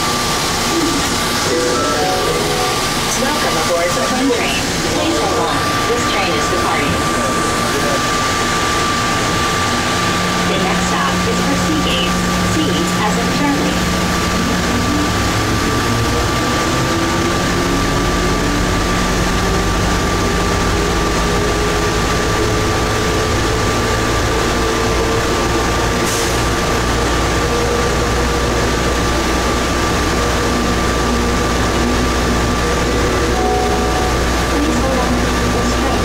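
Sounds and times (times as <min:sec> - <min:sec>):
train rumbling and rolling: 0:00.0 - 0:36.0
steady high tone: 0:00.6 - 0:12.2, 0:33.2 - 0:36.0.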